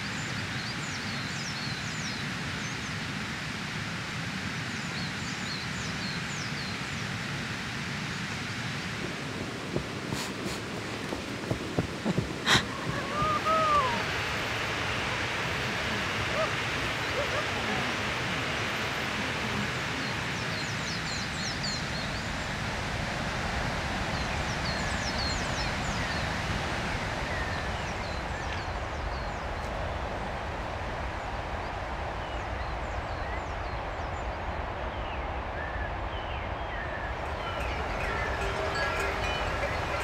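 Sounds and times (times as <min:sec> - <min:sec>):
steady rushing background: 0:08.8 - 0:14.0
small birds chirping: 0:09.0 - 0:22.6, 0:36.2 - 0:40.0.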